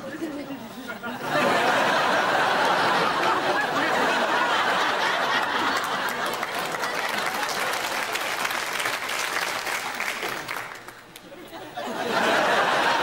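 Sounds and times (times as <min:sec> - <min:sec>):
audience laughing: 0:00.1 - 0:08.3, 0:11.3 - 0:13.0
audience clapping: 0:02.2 - 0:11.3.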